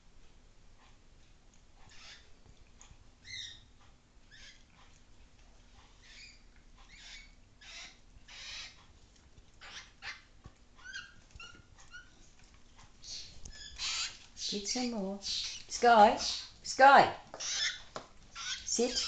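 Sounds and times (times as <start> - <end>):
animal snuffling and rustling: 0.7 - 16.6
high squeaky calls: 1.9 - 2.3, 3.2 - 3.7, 4.3 - 4.6, 6.0 - 8.8, 9.6 - 12.2, 13.0 - 16.6, 17.4 - 19.0.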